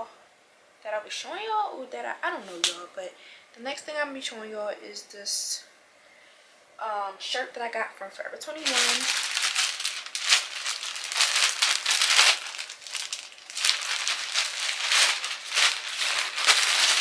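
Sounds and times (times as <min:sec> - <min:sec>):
packaging crinkling: 0:08.5 - 0:17.0.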